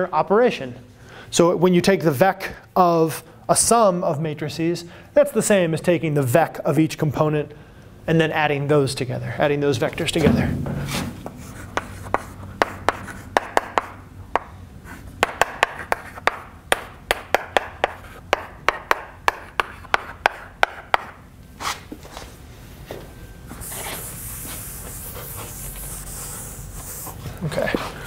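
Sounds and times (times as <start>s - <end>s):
chalk tapping on chalkboard: 10.9s - 14.5s, 15.2s - 21.2s
eraser rubbing on chalkboard: 11.2s - 14.0s, 23.6s - 27.2s.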